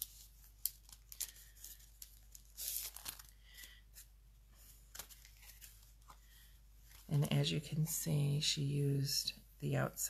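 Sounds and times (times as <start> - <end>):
paper rustling: 0.0 - 7.1.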